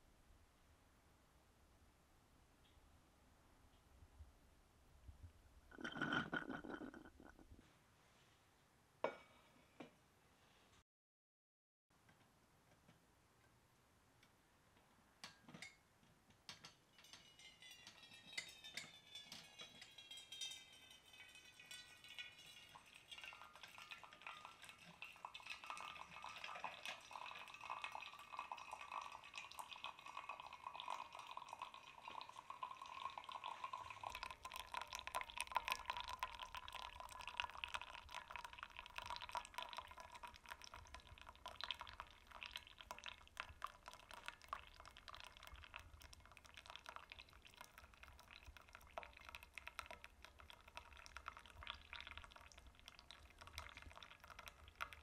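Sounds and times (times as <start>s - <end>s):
coffee trickling into a mug: 5.7s - 7.6s, 16.6s - 55.0s.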